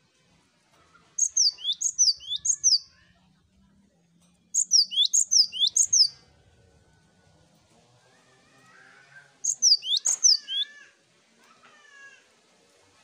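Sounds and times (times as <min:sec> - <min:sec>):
bird singing sharp high notes: 0:01.2 - 0:02.9, 0:04.6 - 0:06.2, 0:09.4 - 0:10.7.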